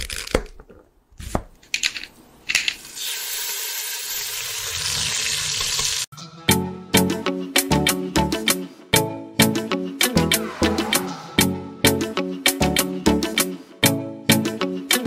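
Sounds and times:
sharp hits: 10.1 - 12.2.

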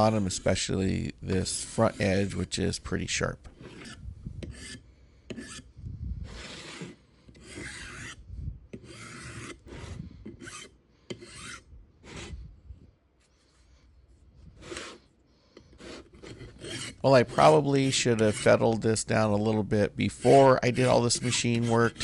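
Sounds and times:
hand file on cast iron: 1.5 - 2.6, 3.6 - 5.7, 6.3 - 12.4, 14.6 - 18.8, 19.4 - 22.0.

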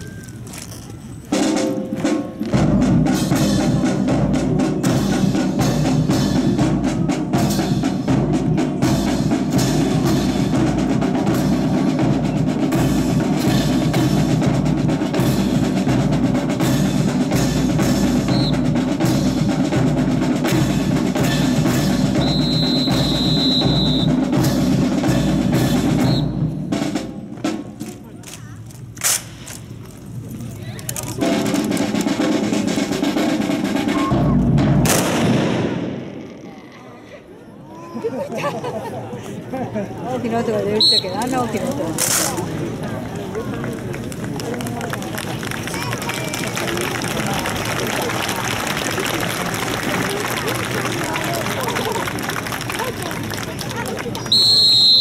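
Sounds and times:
snare drum rolls: 1.3 - 28.0, 31.2 - 36.0.

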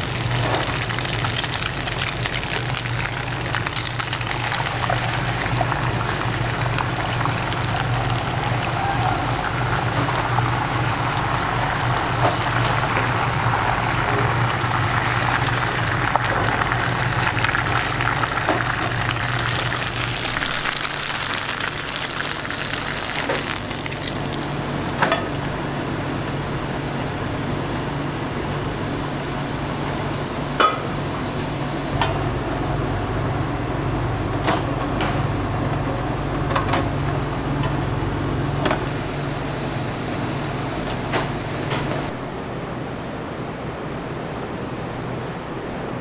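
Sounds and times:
egg sizzling in a frying pan: 0.0 - 25.9.

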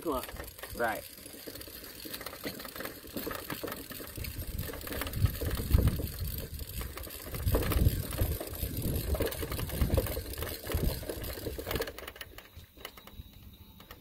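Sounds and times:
hand winder whirring and clicking: 0.0 - 14.0
wind buffeting microphone: 4.1 - 11.9.

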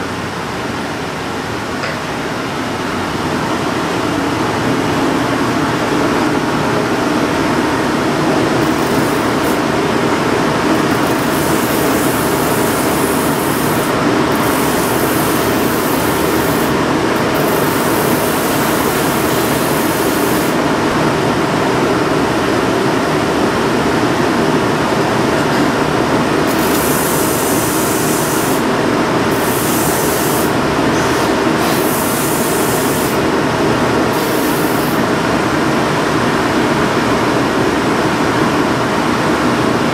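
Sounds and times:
finishing machine running: 6.8 - 35.6
hissing grinding of rubber sole: 8.6 - 9.7, 10.7 - 20.6, 26.5 - 28.7, 29.3 - 33.2.

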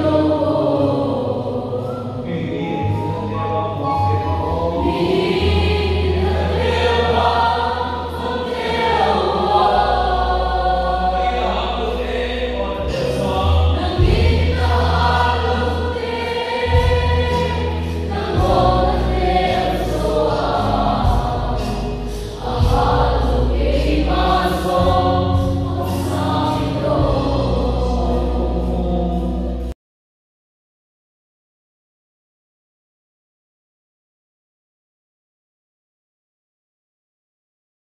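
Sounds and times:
music with deep bass: 0.0 - 29.7
group singing worship song: 0.0 - 29.8.

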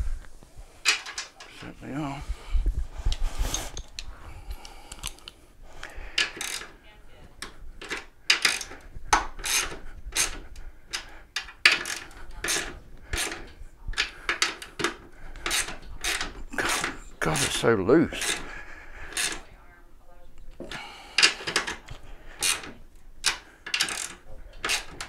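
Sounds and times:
ratchet wrench rasping: 6.2 - 6.7, 7.8 - 8.8, 9.4 - 13.4, 14.3 - 18.5, 19.1 - 19.4, 22.4 - 25.0.

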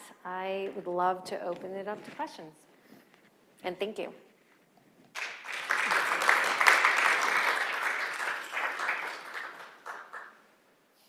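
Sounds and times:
audience applauding: 5.1 - 10.5.

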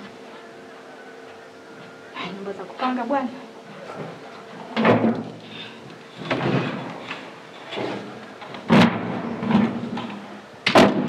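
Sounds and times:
metal grille banging shut: 4.8 - 5.3, 7.7 - 11.0.

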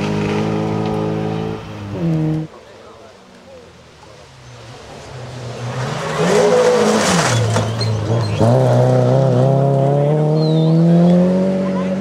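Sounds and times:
rally car engine at full throttle: 0.0 - 12.0
tyres on gravel: 2.3 - 9.8.

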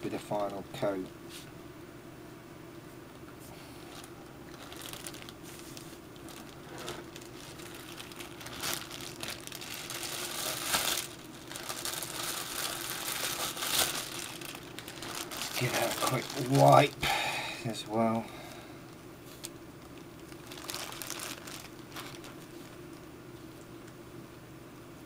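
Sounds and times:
plastic bag crinkling: 3.8 - 17.0, 19.2 - 23.6.

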